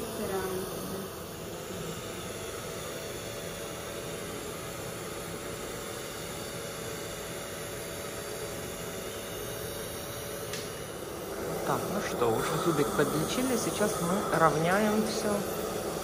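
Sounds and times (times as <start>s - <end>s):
suction hiss: 5.9s - 16.0s.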